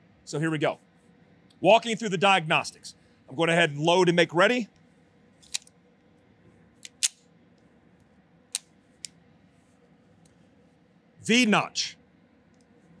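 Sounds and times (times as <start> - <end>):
pistol metallic clicks: 5.4 - 5.7, 6.8 - 7.2.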